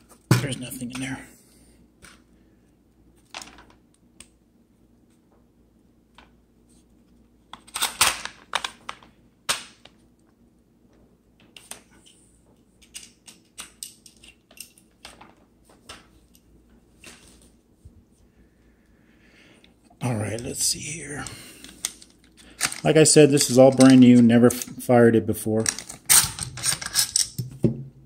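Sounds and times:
rifle parts clacking and clicking: 0:12.8 - 0:15.3, 0:21.6 - 0:24.8, 0:25.6 - 0:27.5.

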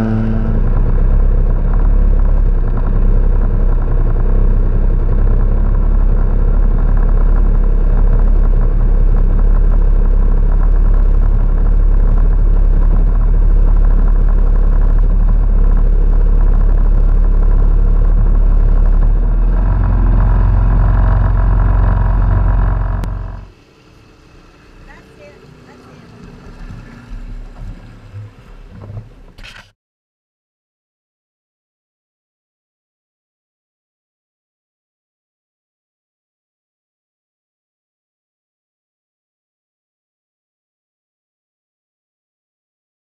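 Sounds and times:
jet ski engine running: 0:00.0 - 0:29.4.

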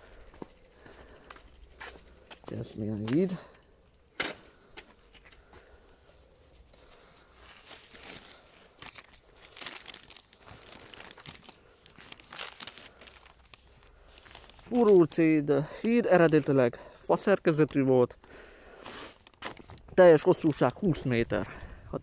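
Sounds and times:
handling noise rustling and clicks: 0:00.1 - 0:15.2, 0:19.2 - 0:20.9.

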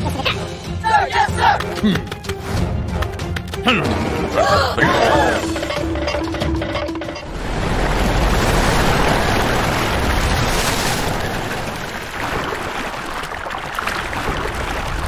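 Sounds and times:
huge wave of rushing water: 0:07.3 - 0:15.0.

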